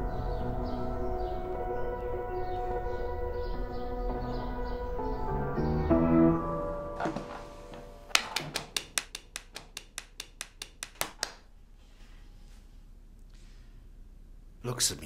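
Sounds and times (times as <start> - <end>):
upright piano notes: 0.0 - 9.7.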